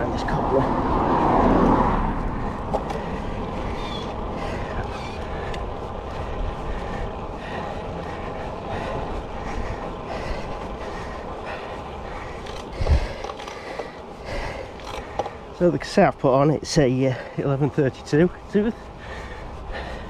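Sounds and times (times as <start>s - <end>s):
wind rushing over microphone: 0.0s - 10.8s, 12.5s - 13.4s
bike tyre rumble: 0.0s - 20.0s.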